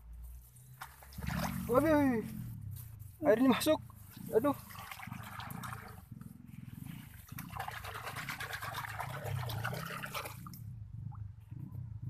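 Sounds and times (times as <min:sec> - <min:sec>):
water and mud splashing: 0:00.8 - 0:02.1, 0:04.2 - 0:06.0, 0:07.2 - 0:10.6
low rumble: 0:10.4 - 0:12.0.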